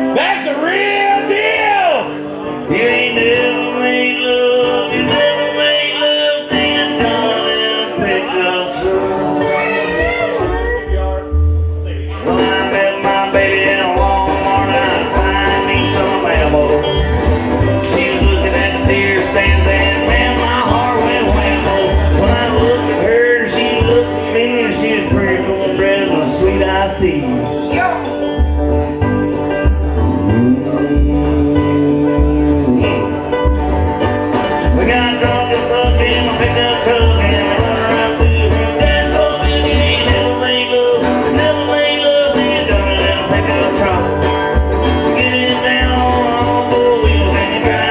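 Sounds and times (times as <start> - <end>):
banjo picking: 0.0 - 47.9
strummed acoustic guitar: 0.0 - 47.9
washtub bass beat: 9.8 - 47.9.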